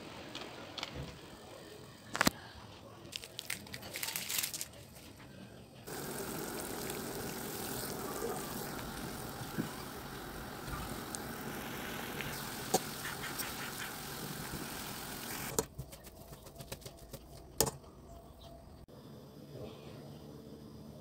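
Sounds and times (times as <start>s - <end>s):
water boiling and bubbling: 5.9s - 15.6s.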